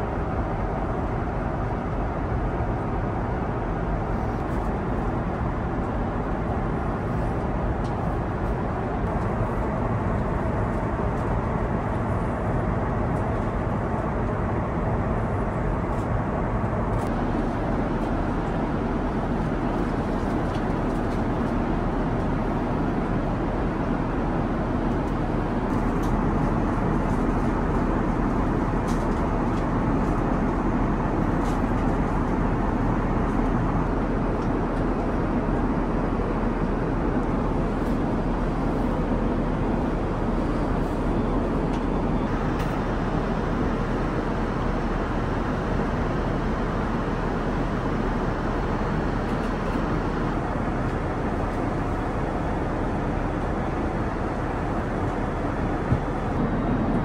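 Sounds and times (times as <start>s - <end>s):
aircraft cabin noise: 0.0s - 57.0s.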